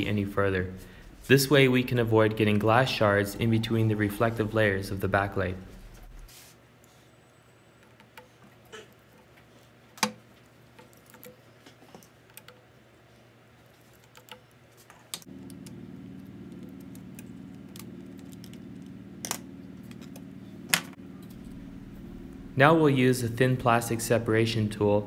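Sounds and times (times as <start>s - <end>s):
low hum: 0.0s - 6.3s, 15.3s - 25.0s.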